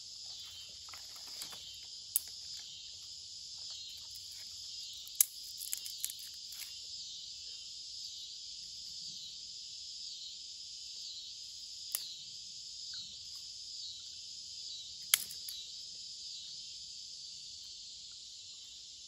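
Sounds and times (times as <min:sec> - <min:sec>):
insect chorus: 0:00.0 - 0:19.0
sticks snapping: 0:15.1 - 0:15.6.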